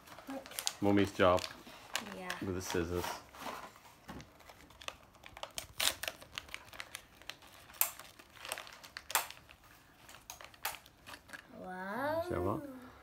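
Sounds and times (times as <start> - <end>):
plastic packaging crinkling: 0.0 - 11.5.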